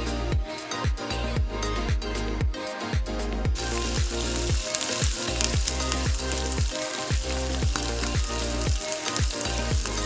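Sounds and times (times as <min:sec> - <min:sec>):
background music with beat: 0:00.0 - 0:10.0
onions sizzling in hot oil: 0:03.6 - 0:10.0.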